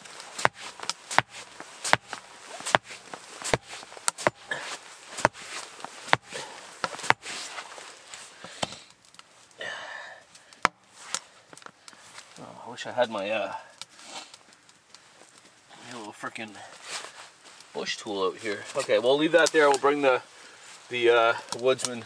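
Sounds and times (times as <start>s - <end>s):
axe chopping into root: 0.4s - 7.5s.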